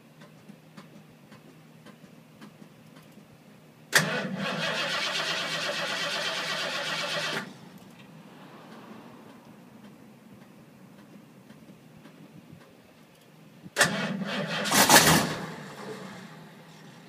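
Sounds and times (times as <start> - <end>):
starter cranking engine: 3.9 - 7.6, 13.8 - 16.4.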